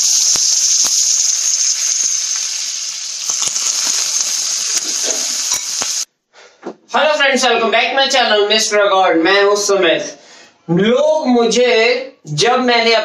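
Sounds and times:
food sizzling in hot wok: 0.0s - 6.1s
sharp crackles: 0.0s - 6.1s.

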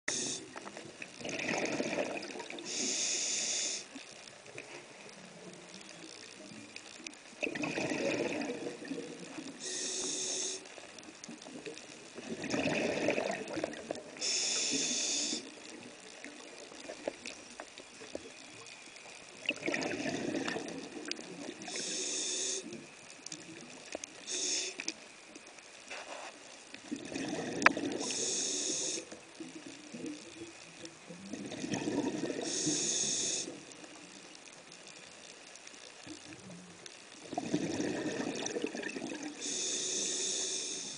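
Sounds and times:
regulator inhale hiss: 0.1s - 0.6s, 2.6s - 4.0s, 9.6s - 10.8s, 14.2s - 15.6s, 21.6s - 22.9s, 24.2s - 25.0s, 27.6s - 29.2s, 32.4s - 33.7s, 39.3s - 40.9s
exhaled bubbles rumbling: 1.0s - 2.6s, 7.4s - 9.6s, 11.4s - 14.2s, 19.4s - 21.7s, 26.8s - 28.1s, 31.2s - 32.6s, 37.2s - 39.4s.

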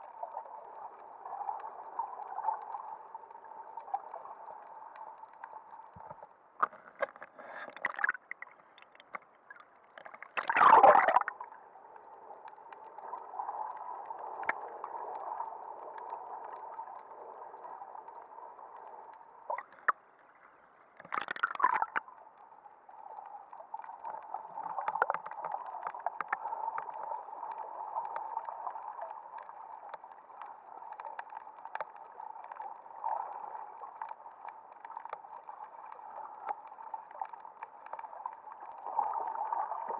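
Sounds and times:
muffled underwater water noise: 0.0s - 39.9s
rushes of water bubbles: 7.7s - 8.6s, 9.5s - 11.7s, 21.0s - 22.1s
small clicks: 23.1s - 33.2s.

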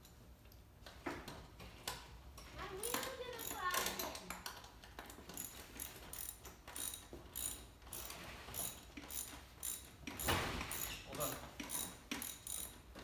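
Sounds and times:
ratchet wrench clicking: 2.9s - 4.2s, 5.3s - 12.8s.

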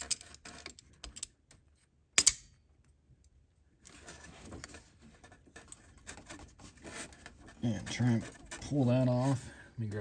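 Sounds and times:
sharp metal snap: 2.2s - 2.6s
faint scraping and handling: 3.7s - 10.0s.

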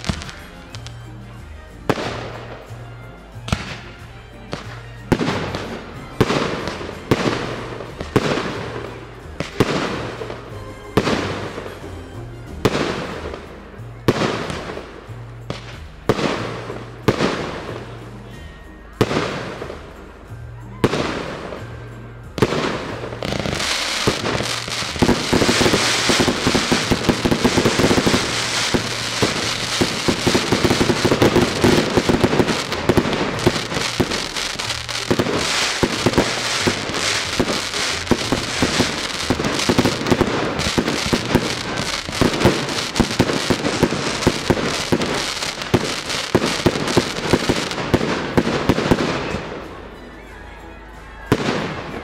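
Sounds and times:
fireworks crackling: 0.0s - 50.1s, 51.2s - 52.0s
firework launches: 22.4s - 49.4s
firework shell bursts: 22.4s - 49.4s.

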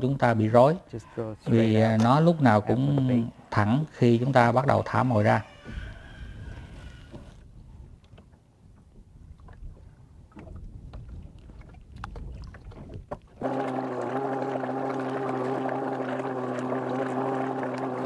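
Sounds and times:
boat motor humming: 12.8s - 18.0s.

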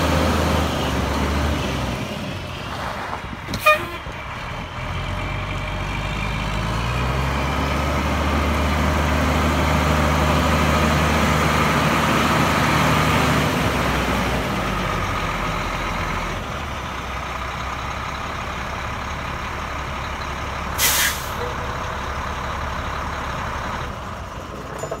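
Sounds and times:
truck diesel engine running: 0.0s - 24.8s
air brakes hissing: 20.8s - 21.6s.

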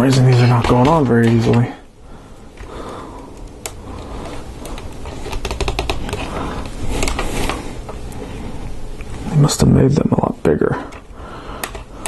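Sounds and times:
plastic parts clicking and rubbing: 0.0s - 1.8s, 2.6s - 7.6s, 10.9s - 11.9s.

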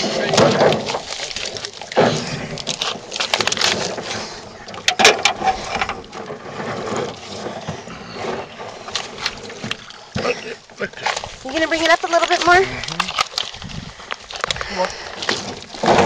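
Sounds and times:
heavy laboured breathing: 2.0s - 4.8s, 5.4s - 9.1s, 12.6s - 15.8s.

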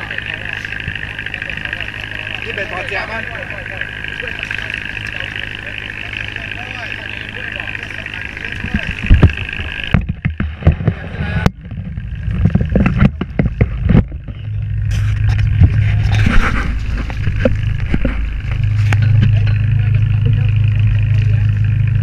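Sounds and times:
steady low hum: 0.0s - 22.0s
knocks and thumps: 8.6s - 19.6s.

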